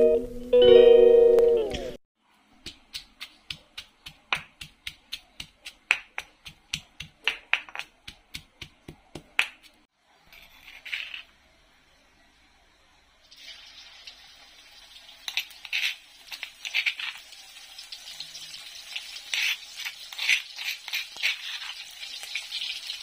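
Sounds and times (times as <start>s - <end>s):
pestle pounding in stone mortar: 2.6s - 9.8s.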